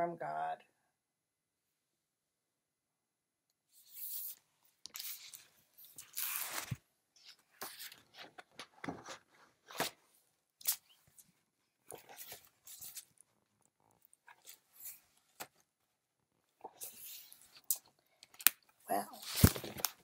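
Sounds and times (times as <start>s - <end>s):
book pages rustling: 3.7s - 10.0s, 10.6s - 15.7s, 16.6s - 20.0s.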